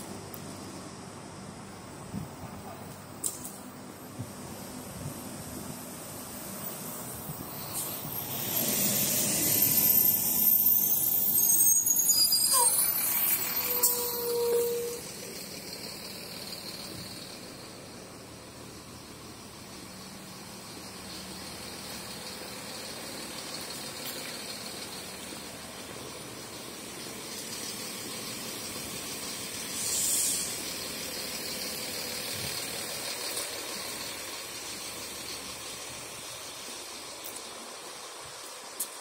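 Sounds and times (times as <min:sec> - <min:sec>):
traffic noise: 0:00.0 - 0:39.0
short loud hiss: 0:29.7 - 0:30.6.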